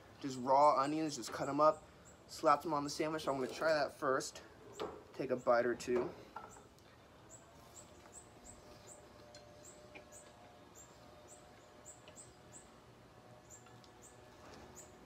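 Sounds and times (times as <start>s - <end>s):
small bird chirping: 6.5s - 15.0s.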